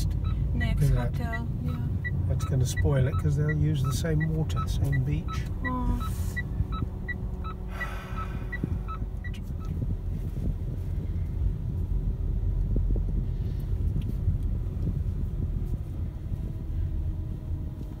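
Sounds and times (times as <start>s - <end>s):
short electronic beeps: 0.0s - 9.8s
car engine and tyres rumbling: 0.0s - 18.0s.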